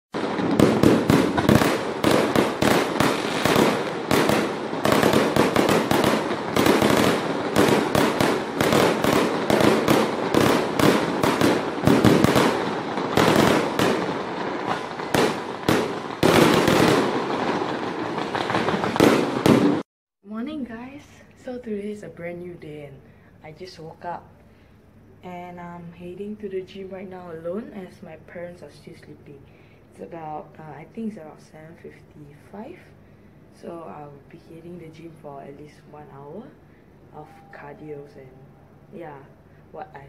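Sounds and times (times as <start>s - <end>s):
fireworks bangs and crackles: 0.2s - 19.8s.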